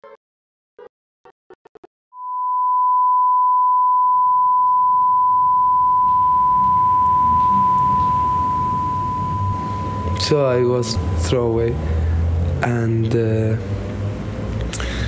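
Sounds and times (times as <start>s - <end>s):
high-pitched ringing tone: 2.2s - 12.2s.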